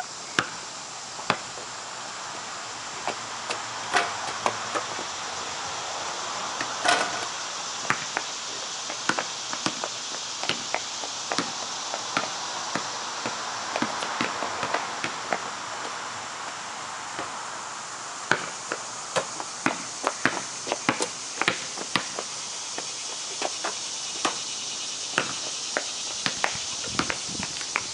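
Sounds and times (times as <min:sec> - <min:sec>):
basketball bouncing on concrete: 0:00.4 - 0:00.6, 0:01.3 - 0:01.5, 0:03.0 - 0:05.0, 0:06.6 - 0:08.3, 0:08.9 - 0:15.4, 0:18.3 - 0:24.5, 0:25.1 - 0:27.9.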